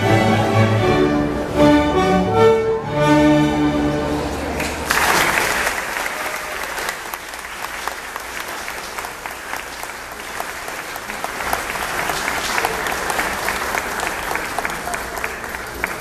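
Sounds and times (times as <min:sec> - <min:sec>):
audience applauding: 0:04.4 - 0:16.0.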